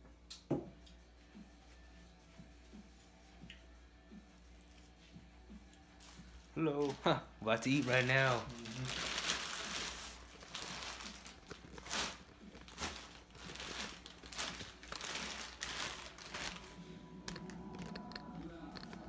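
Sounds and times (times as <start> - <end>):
plastic bags crinkling: 6.6 - 19.0.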